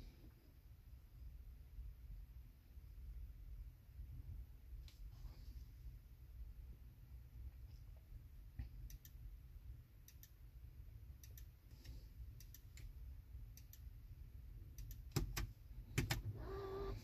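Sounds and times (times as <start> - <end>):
faint double ticks: 10.1 - 10.4.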